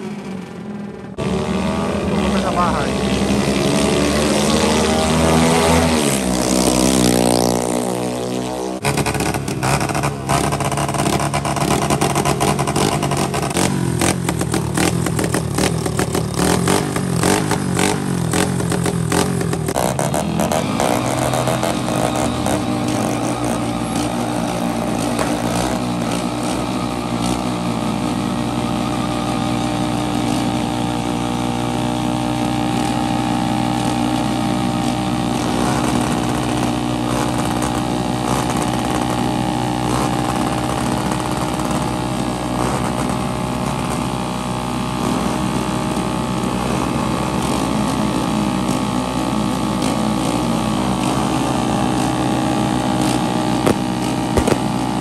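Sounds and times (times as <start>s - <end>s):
motorcycle engines revving: 0.0s - 55.0s
scooter engine at high revs: 0.0s - 55.0s
exhaust backfire pops: 8.8s - 28.2s, 33.8s - 55.0s.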